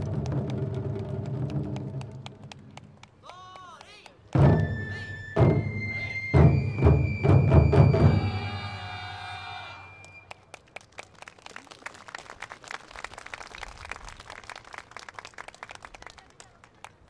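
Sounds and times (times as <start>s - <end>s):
taiko drum beat: 0.0s - 2.4s, 4.4s - 8.6s
crowd applauding: 0.0s - 5.1s, 8.1s - 17.0s.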